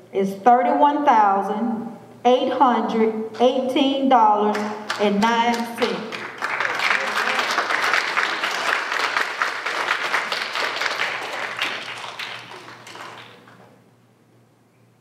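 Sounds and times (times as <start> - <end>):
crowd applauding: 4.9 - 13.8.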